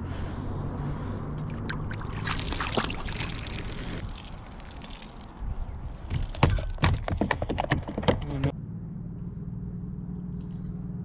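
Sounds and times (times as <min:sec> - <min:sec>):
water splashing and trickling: 0:00.8 - 0:07.2
sharp clicks and knocks: 0:06.1 - 0:08.5.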